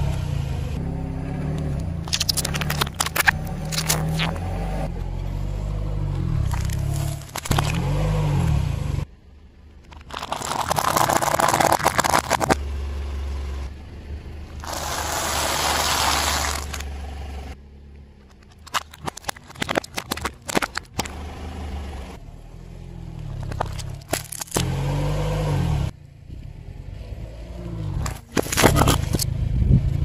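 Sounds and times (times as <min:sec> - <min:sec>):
car engine running low: 0:00.0 - 0:30.0
tyre crushing snack food: 0:02.1 - 0:04.4, 0:06.5 - 0:07.9, 0:09.9 - 0:12.6, 0:14.6 - 0:16.9, 0:18.4 - 0:21.1, 0:23.4 - 0:24.7, 0:28.1 - 0:29.2.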